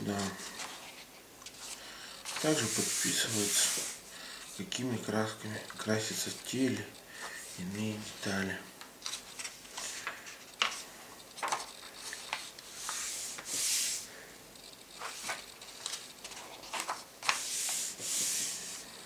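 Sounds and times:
paper pages rustling: 0.0s - 4.6s, 9.0s - 14.1s, 15.0s - 19.0s.

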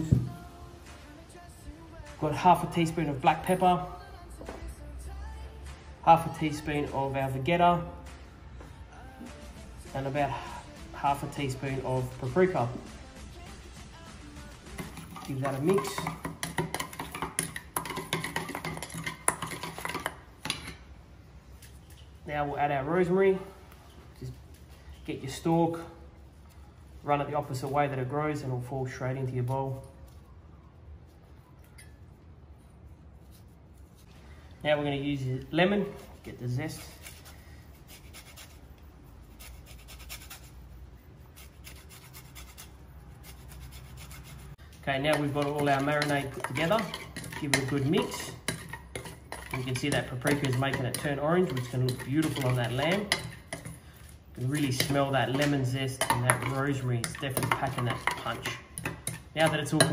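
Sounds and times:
spoon scraping steel bowl: 14.8s - 20.8s, 41.2s - 59.9s
lemon scraping on grater: 36.7s - 53.7s.

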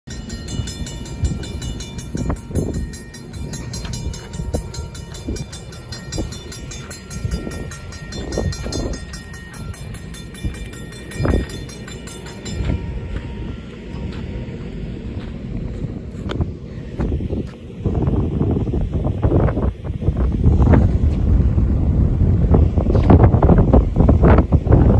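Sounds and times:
crossing warning bell ringing: 0.0s - 15.5s
train rumble: 0.0s - 24.9s.

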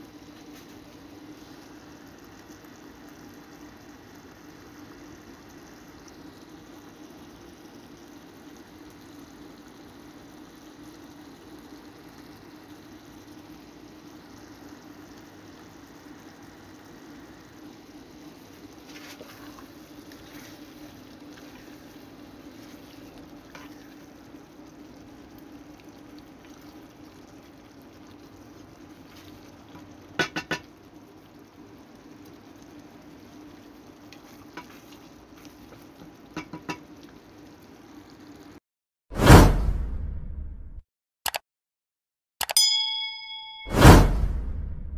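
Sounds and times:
stew bubbling in a pot: 0.0s - 38.6s
wooden spoon scraping a pot: 18.8s - 20.7s
knocks on a pot: 30.2s - 30.7s, 36.4s - 36.8s.

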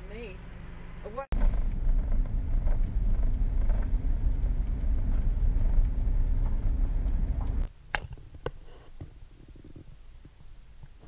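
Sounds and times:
tyres and engine rumbling: 0.0s - 7.7s.

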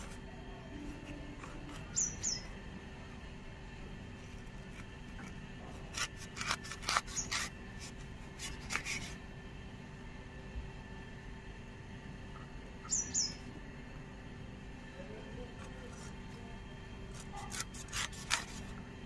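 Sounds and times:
blade cutting and scraping mango: 0.0s - 2.6s, 4.1s - 9.3s, 15.2s - 18.9s
high bird chirps: 1.8s - 2.6s, 12.8s - 13.5s.

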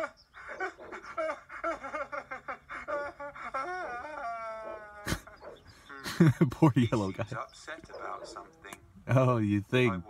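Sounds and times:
cartoon voice sobbing and wailing: 0.0s - 5.4s.

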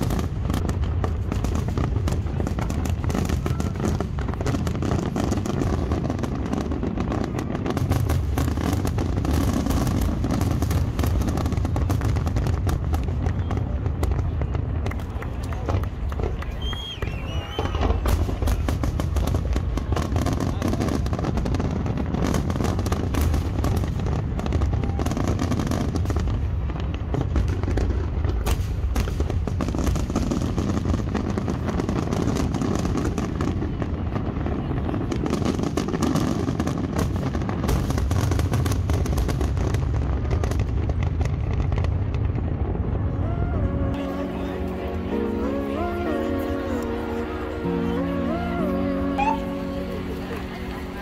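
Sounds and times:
fireworks bursting and crackling: 0.0s - 51.0s
deep rumble: 38.4s - 51.0s.

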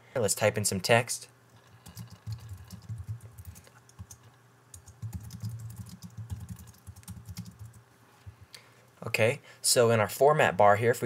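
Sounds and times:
computer keyboard typing: 1.7s - 7.8s.

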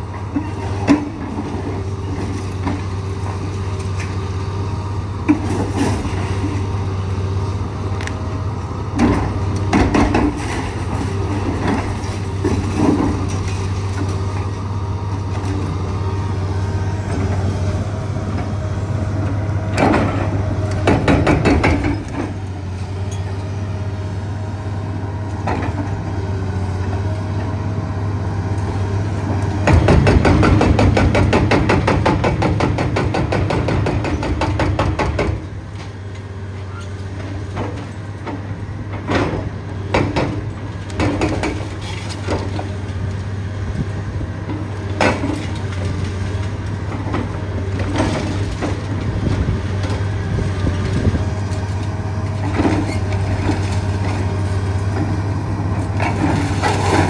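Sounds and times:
excavator diesel engine running: 0.0s - 57.0s
hydraulic breaker hammering: 19.8s - 22.2s, 29.6s - 35.4s
clanks and knocks: 19.8s - 22.4s.

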